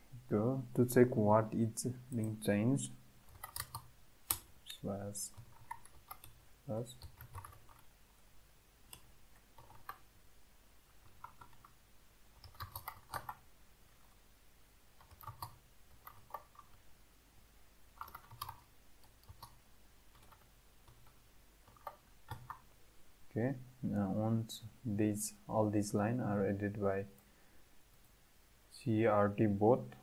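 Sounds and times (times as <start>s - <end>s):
keyboard typing clicks: 3.3s - 4.4s, 12.4s - 13.4s, 15.0s - 16.7s, 18.0s - 19.6s, 20.2s - 22.6s.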